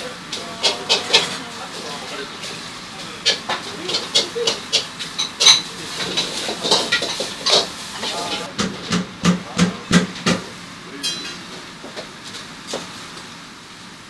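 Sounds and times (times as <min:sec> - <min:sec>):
tableware and utensils clattering: 0:00.3 - 0:11.5.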